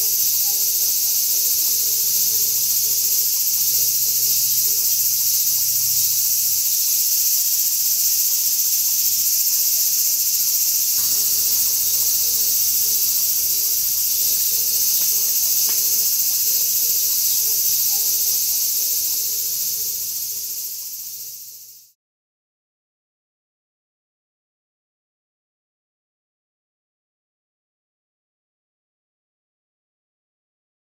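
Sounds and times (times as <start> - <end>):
insects chorus singing: 0.0 - 21.9.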